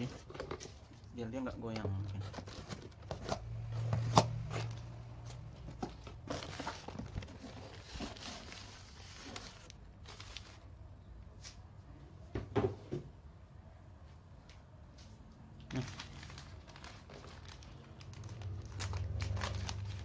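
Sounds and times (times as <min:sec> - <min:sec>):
newspaper rustling and crinkling: 0:01.6 - 0:10.7, 0:15.7 - 0:20.0.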